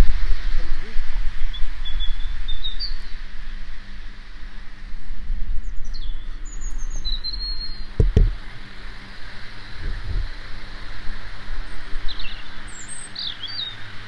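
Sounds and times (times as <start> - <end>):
steady low rumble: 0.0 - 12.1
small birds chirping: 0.6 - 4.0, 5.5 - 14.0
dull thump: 8.0 - 8.4.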